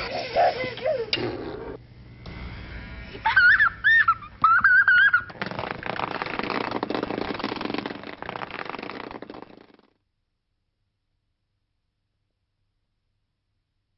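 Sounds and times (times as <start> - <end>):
child giggling: 0.0 - 1.7, 3.2 - 5.4
vibrator buzzing against hard floor: 4.4 - 9.9.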